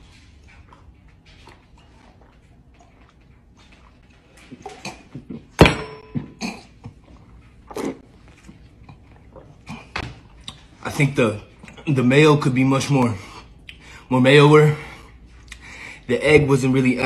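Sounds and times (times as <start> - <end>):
person gulping: 4.5 - 5.5, 6.2 - 10.8.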